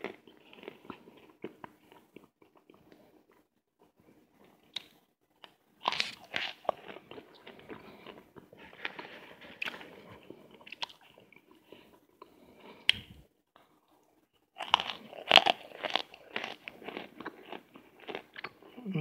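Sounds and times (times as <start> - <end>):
crunchy chewing: 0.0 - 13.0, 13.6 - 18.8.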